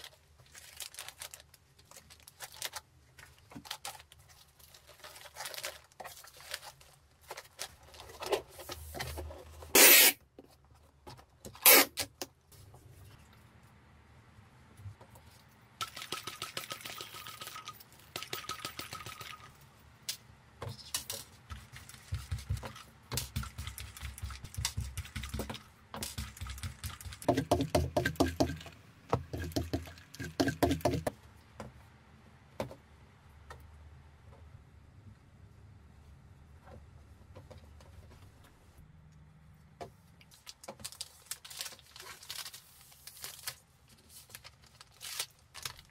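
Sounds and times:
bubble wrap crinkling: 0:00.0 - 0:08.3, 0:40.3 - 0:45.9.

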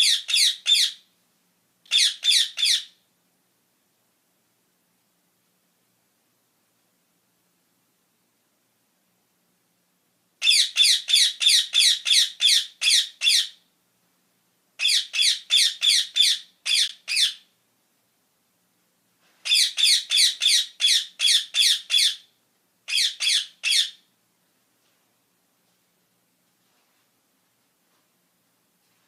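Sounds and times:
parakeet screeching: 0:00.0 - 0:01.0, 0:01.9 - 0:03.0, 0:10.4 - 0:13.6, 0:14.8 - 0:17.5, 0:19.4 - 0:22.3, 0:22.9 - 0:24.0.

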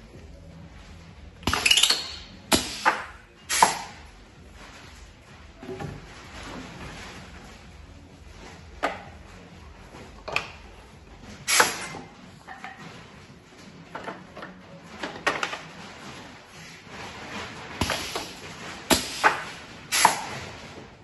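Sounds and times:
pneumatic clamps clunking: 0:01.4 - 0:04.0, 0:11.4 - 0:12.8, 0:17.8 - 0:20.4
wooden bars knocking on metal frame: 0:08.7 - 0:09.3, 0:11.7 - 0:13.2.

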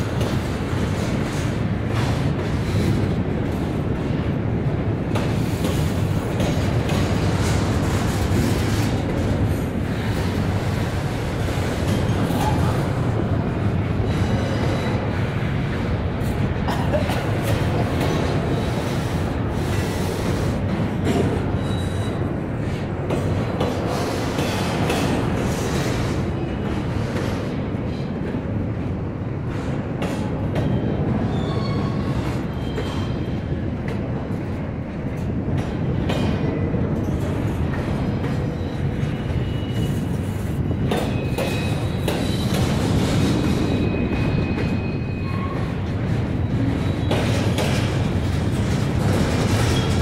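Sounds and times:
train wheels rumbling on rail: 0:00.0 - 0:50.0
high wheel squeals: 0:21.6 - 0:22.2, 0:30.7 - 0:33.3, 0:43.4 - 0:45.8.

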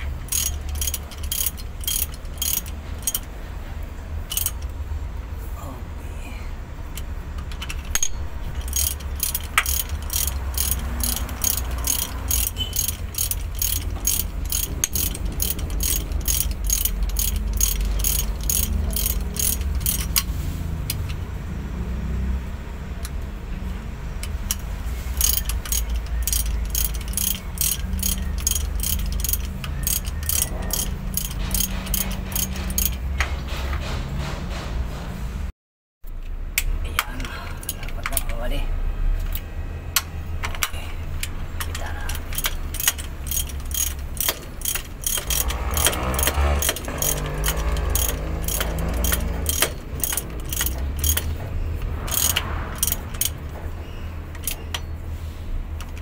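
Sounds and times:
ratchet wrench clicking: 0:00.0 - 0:03.4, 0:04.2 - 0:04.8, 0:06.9 - 0:21.2, 0:24.2 - 0:33.2, 0:36.9 - 0:38.4, 0:39.2 - 0:55.0, 0:55.6 - 0:56.0
steady low hum: 0:00.0 - 0:21.8.

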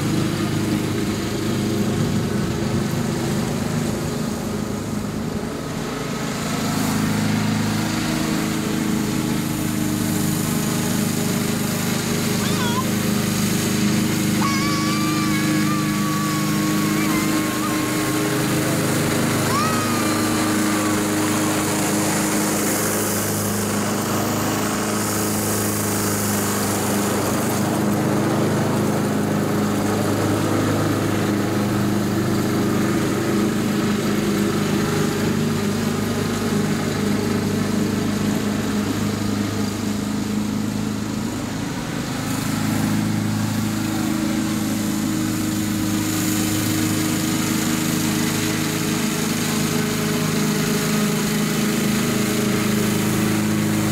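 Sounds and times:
lawn mower engine running: 0:00.0 - 0:53.9.

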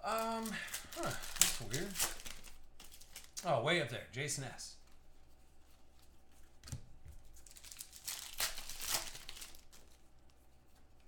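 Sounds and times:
card wrappers crinkling: 0:00.0 - 0:03.5, 0:07.2 - 0:10.3.

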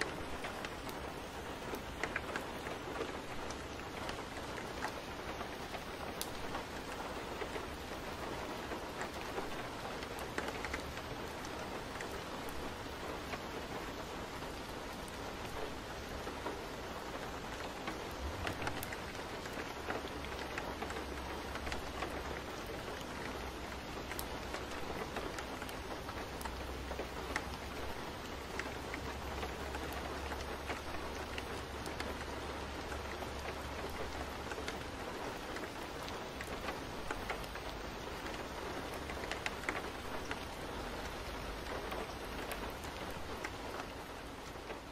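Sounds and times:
rain falling: 0:00.0 - 0:44.9.

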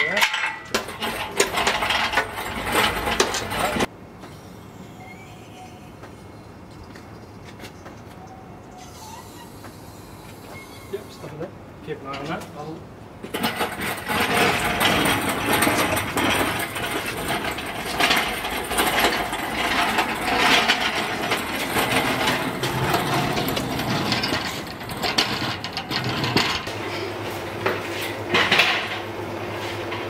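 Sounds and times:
engine crane rattling on concrete: 0:00.0 - 0:03.9, 0:13.2 - 0:26.8
castors rolling: 0:00.0 - 0:04.0, 0:12.1 - 0:30.0
chain and frame knocking: 0:13.4 - 0:26.6.

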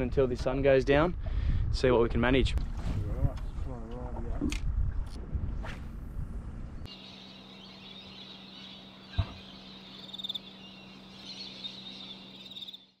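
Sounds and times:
faint low hum: 0:05.2 - 0:13.0
high-pitched chorus of chirping animals: 0:06.9 - 0:13.0
thump: 0:09.1 - 0:09.4.

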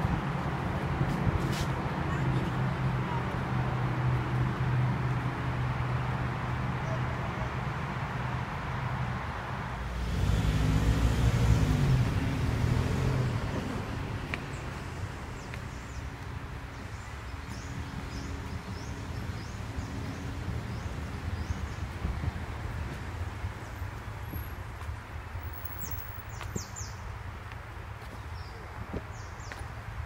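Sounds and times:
engine hum: 0:00.0 - 0:26.4
car driving past: 0:09.8 - 0:15.9.

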